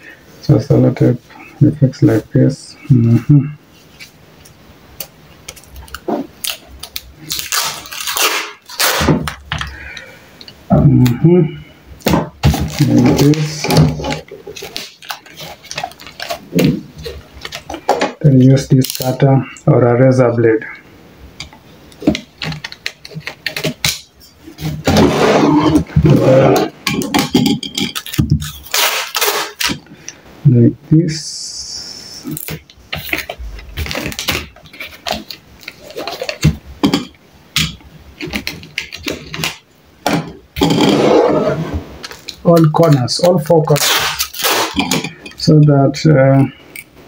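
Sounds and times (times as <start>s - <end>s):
packing tape ripping: 5.0s - 9.6s, 12.4s - 19.2s, 22.2s - 26.7s, 27.9s - 29.8s, 32.2s - 36.9s, 37.6s - 39.6s, 42.0s - 45.1s
tape ripping off roll: 5.0s - 9.6s, 28.0s - 29.8s, 40.6s - 45.1s.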